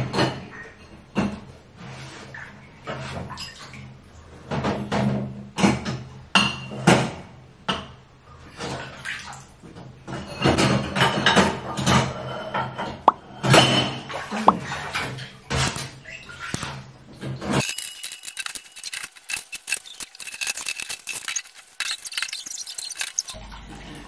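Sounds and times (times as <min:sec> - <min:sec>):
dishes and utensils clattering: 0:10.1 - 0:14.1, 0:17.3 - 0:23.4.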